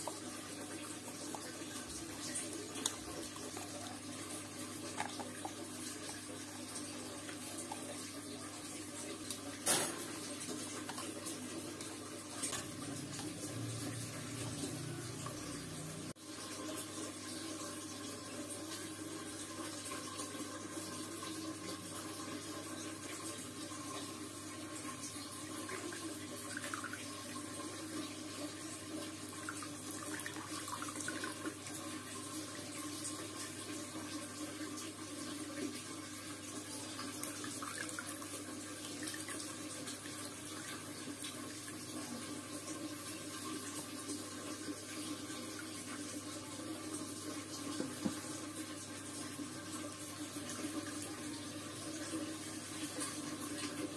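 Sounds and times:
water trickling into a bottle: 0.0s - 8.4s.

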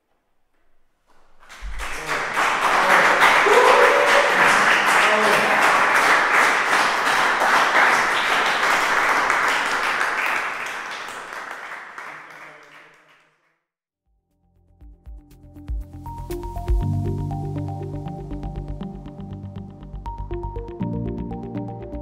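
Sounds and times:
audience applauding: 1.4s - 13.4s.

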